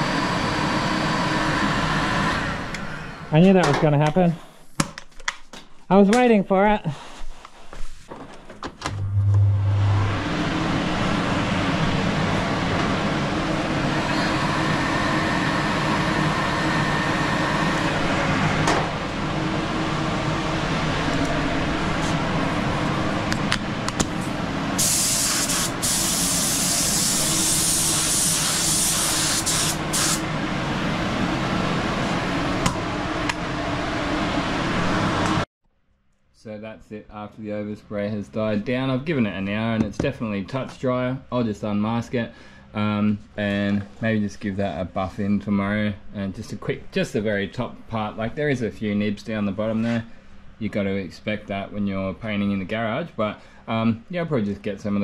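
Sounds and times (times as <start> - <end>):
air compressor running: 8.9 - 33.8
spray gun air hiss: 24.8 - 30.2.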